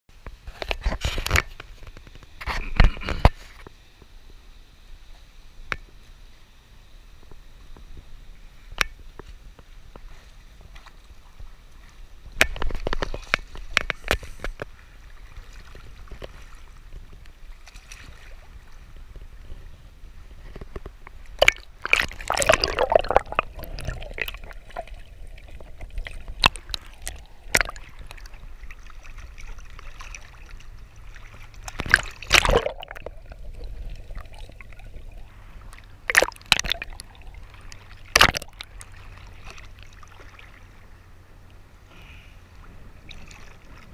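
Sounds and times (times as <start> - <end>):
seawater sloshing and splashing: 10.0 - 41.2, 42.5 - 43.9
water gurgling: 11.1 - 41.7.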